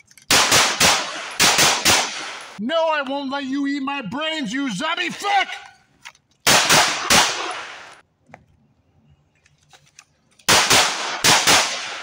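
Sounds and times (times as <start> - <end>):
pistol shots with echo: 0.3 - 2.6, 6.5 - 8.0, 10.5 - 12.0.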